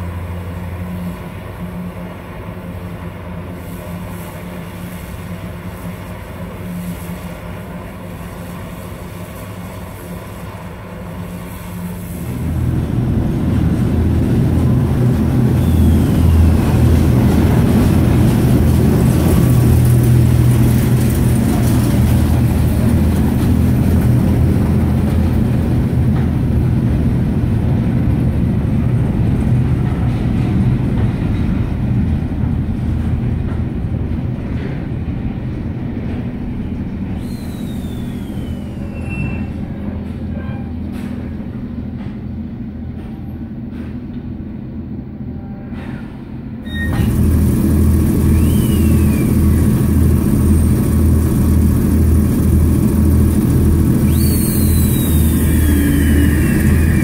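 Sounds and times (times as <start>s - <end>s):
diesel locomotive engine: 0.0s - 57.0s
rolling coaches rumbling and clicking: 0.0s - 57.0s
diesel engine idling throb: 46.9s - 57.0s.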